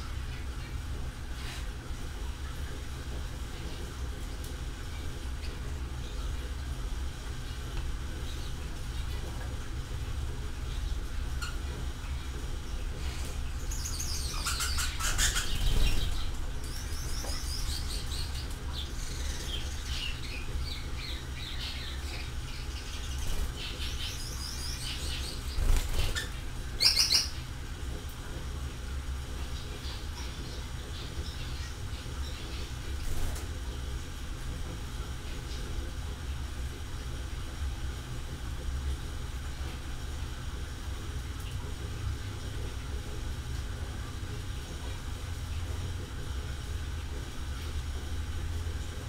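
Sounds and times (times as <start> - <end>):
small birds chirping: 10.6 - 27.5, 29.4 - 33.4.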